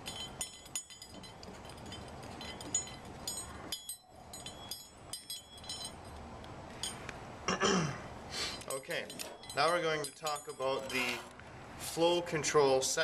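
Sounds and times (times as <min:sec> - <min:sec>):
metal fittings clicking and clinking: 0:00.0 - 0:07.0, 0:08.5 - 0:11.4.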